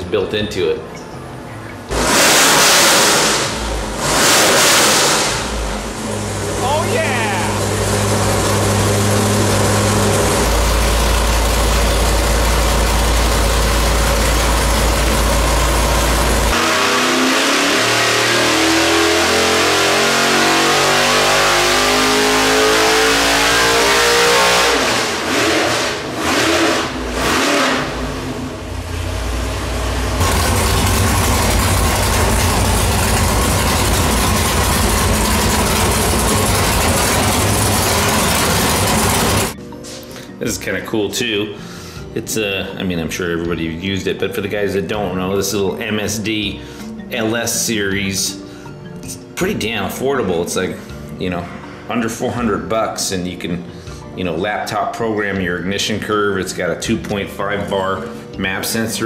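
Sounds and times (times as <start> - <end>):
engine revving at full throttle: 1.9 - 39.6
engine idling: 5.1 - 16.6, 27.9 - 39.6.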